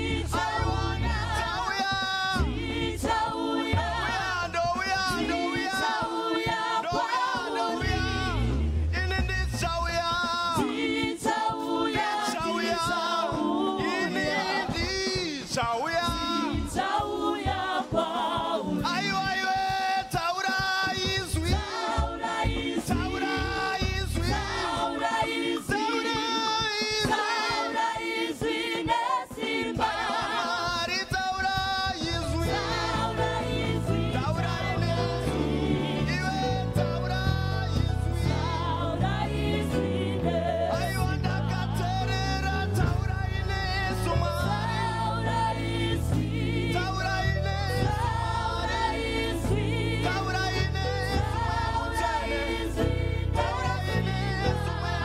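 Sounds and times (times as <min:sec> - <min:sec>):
low bass accompaniment: 0:00.0 - 0:05.2, 0:07.8 - 0:10.6, 0:21.4 - 0:24.9, 0:31.5 - 0:55.0
choir singing: 0:00.0 - 0:55.0.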